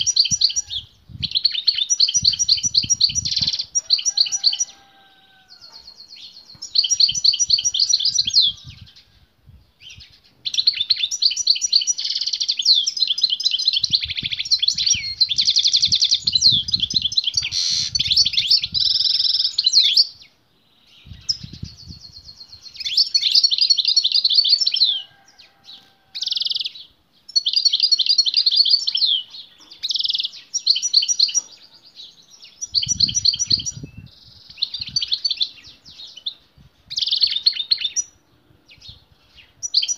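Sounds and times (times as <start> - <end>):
goldfinch singing: 9.9 - 20.2.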